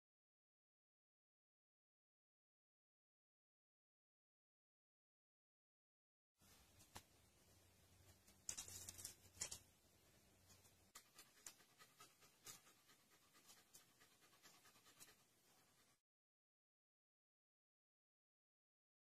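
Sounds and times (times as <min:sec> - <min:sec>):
dog panting: 0:10.9 - 0:16.0.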